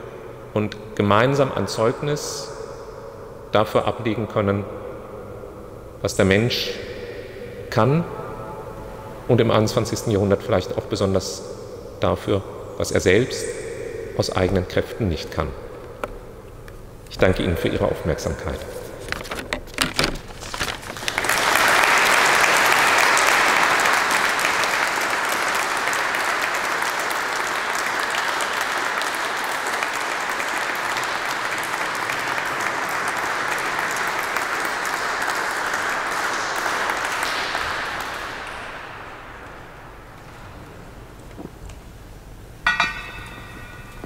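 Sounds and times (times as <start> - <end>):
audience applause: 20.9 - 39.8.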